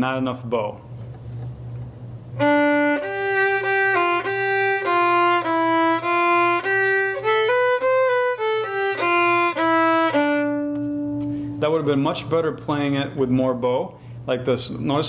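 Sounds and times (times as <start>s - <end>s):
solo violin melody: 2.4s - 11.6s.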